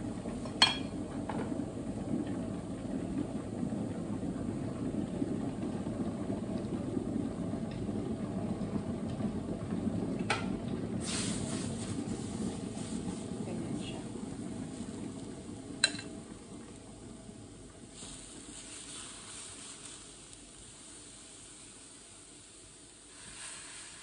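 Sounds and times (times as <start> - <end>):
kitchen fan humming: 0.0 - 24.0
chicken hissing in hot pan: 11.0 - 11.9, 18.0 - 20.2, 23.1 - 24.0.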